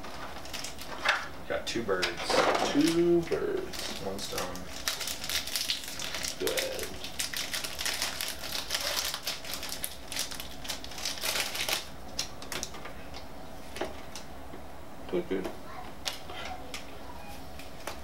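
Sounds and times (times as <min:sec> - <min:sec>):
foil wrapper crinkling: 0:00.0 - 0:01.3, 0:02.6 - 0:13.2.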